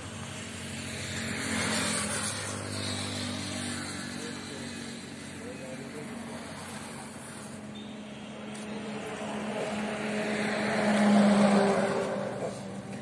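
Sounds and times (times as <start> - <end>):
vehicle passing: 0.7 - 13.0.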